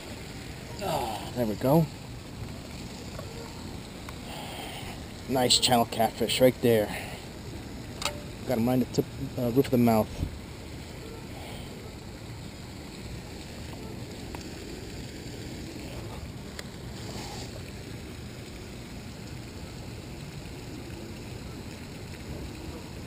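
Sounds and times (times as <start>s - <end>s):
lapping water: 0.0s - 12.8s, 13.4s - 14.6s, 15.7s - 18.0s.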